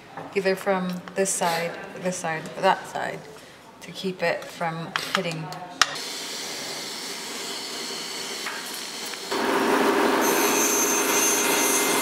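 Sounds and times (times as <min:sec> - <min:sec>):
workshop noise: 0:00.0 - 0:12.0
bandsaw cutting wood: 0:06.0 - 0:12.0.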